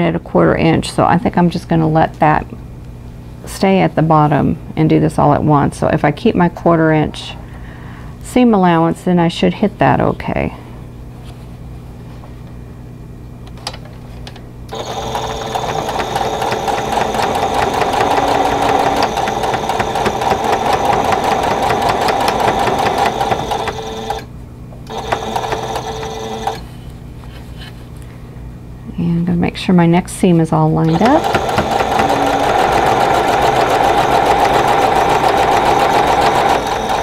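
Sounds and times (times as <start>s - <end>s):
sewing machine stitching: 14.7s - 24.3s, 24.9s - 26.7s, 30.8s - 37.0s.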